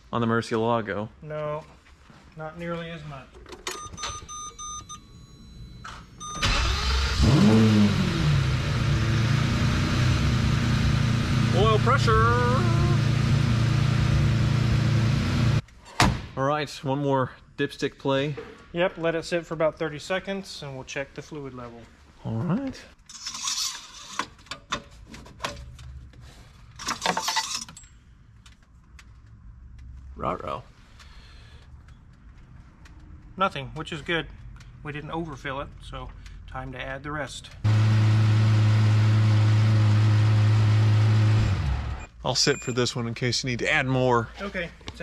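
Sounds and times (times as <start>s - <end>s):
car engine starting and idling: 5.8s - 15.6s, 37.4s - 42.6s.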